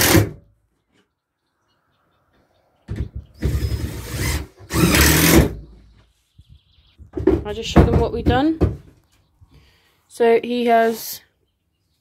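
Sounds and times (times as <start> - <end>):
drill-driver driving screws: 0.0 - 0.3, 3.4 - 5.6.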